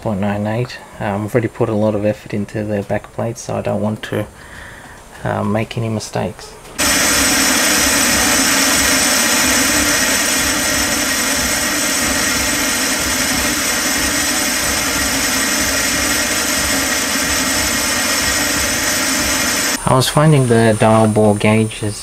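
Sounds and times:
lathe cutting metal whir: 0:06.8 - 0:19.8.

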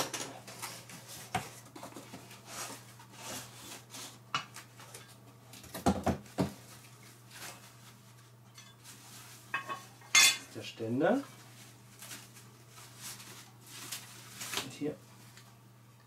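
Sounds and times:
packaging crinkling and scraping: 0:11.4 - 0:15.5.

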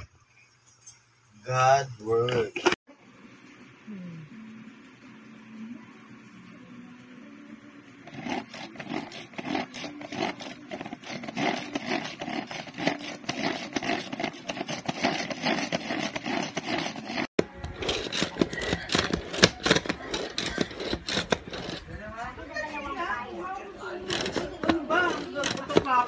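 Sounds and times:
food chopper rubbing and scraping: 0:08.0 - 0:23.1, 0:23.8 - 0:26.0.

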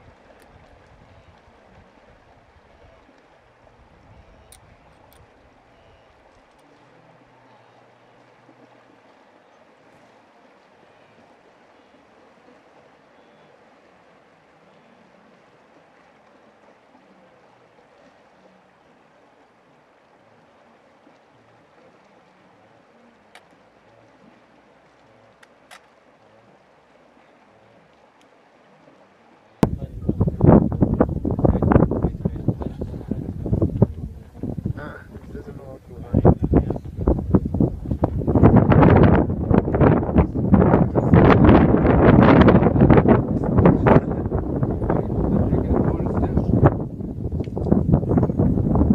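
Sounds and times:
small clicks or splashes: 0:00.0 - 0:02.0, 0:04.3 - 0:07.4, 0:23.1 - 0:26.3
river water rushing: 0:00.0 - 0:48.0
gusty wind on microphone: 0:29.6 - 0:48.9.

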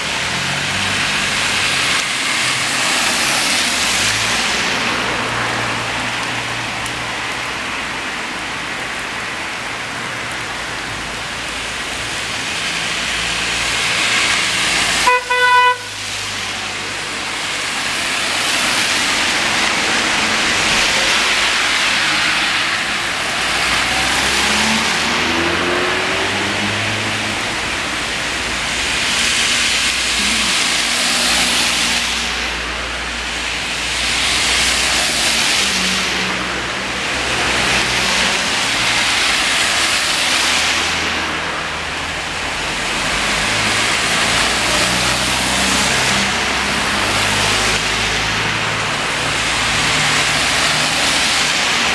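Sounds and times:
car tyres swishing on wet road: 0:00.0 - 0:51.9
heavy rain hissing: 0:00.0 - 0:51.9
car horn honk: 0:15.0 - 0:16.0.

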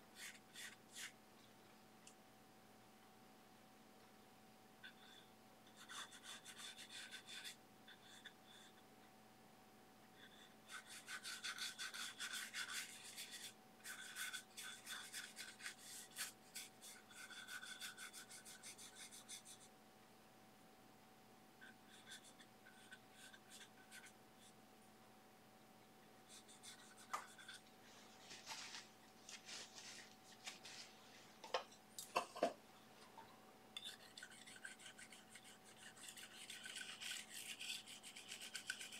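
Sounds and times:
brush scrubbing paint on panel: 0:34.0 - 0:38.9.

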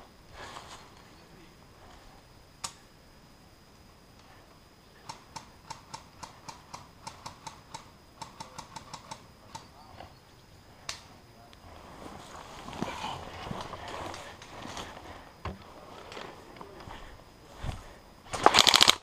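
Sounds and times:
airsoft guns firing: 0:18.3 - 0:19.0.

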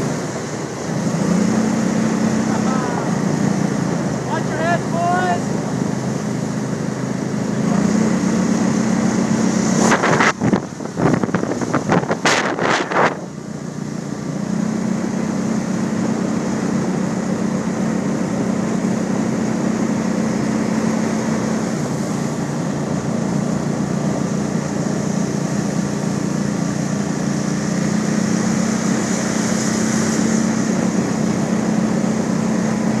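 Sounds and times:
loud rushing noise bursts: 0:00.0 - 0:13.5, 0:15.3 - 0:33.0
boat motor droning: 0:00.0 - 0:33.0.

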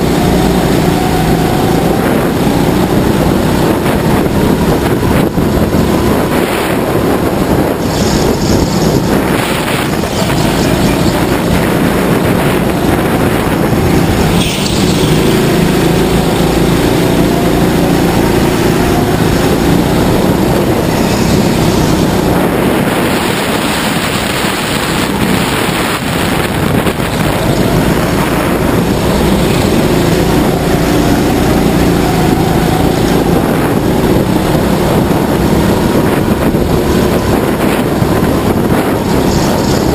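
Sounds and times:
go-kart engine at full speed: 0:00.0 - 0:39.9
wind rushing over microphone: 0:00.0 - 0:39.9.

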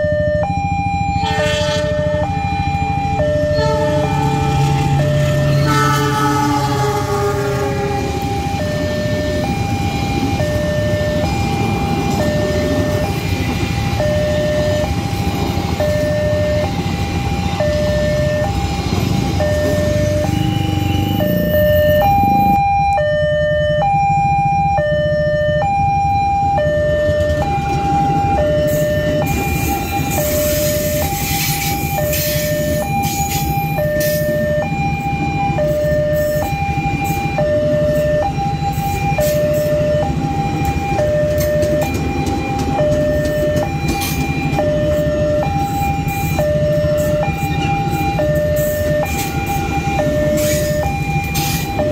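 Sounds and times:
level crossing alarm tones: 0:00.0 - 0:51.9
train rumble: 0:00.0 - 0:51.9
locomotive horn: 0:01.2 - 0:02.4, 0:03.4 - 0:09.4.

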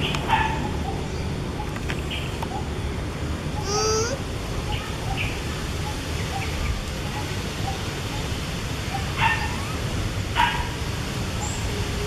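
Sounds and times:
high-pitched animal calls: 0:03.6 - 0:05.3.

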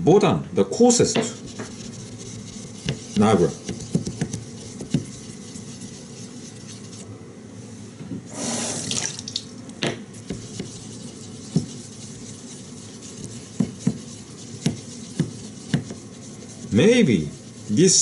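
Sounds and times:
stone scrubbing on whetstone: 0:01.2 - 0:07.1, 0:10.1 - 0:18.0.

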